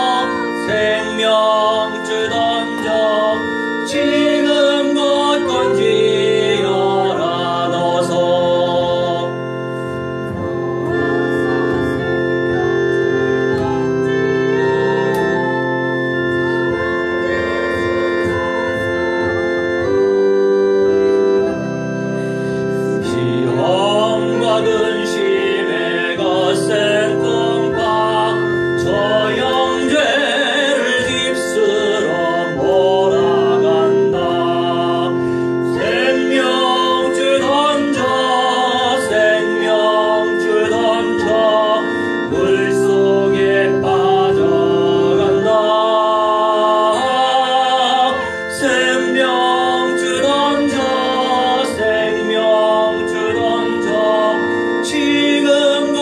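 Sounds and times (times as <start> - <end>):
man singing: 0.0 - 9.7, 22.9 - 56.0
sustained organ-style keyboard chords: 0.0 - 56.0.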